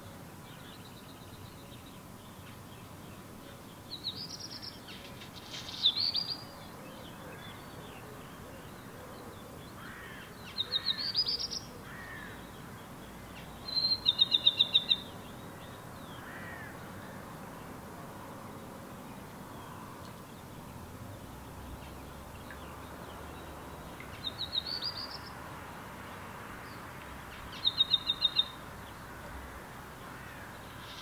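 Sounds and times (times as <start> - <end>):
songbird singing high notes: 13.6 - 15.1.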